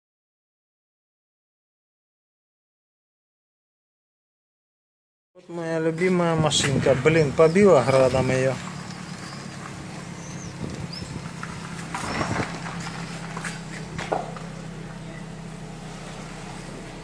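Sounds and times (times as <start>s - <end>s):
footsteps on gravel: 5.4s - 15.4s
car engine idling: 5.5s - 17.0s.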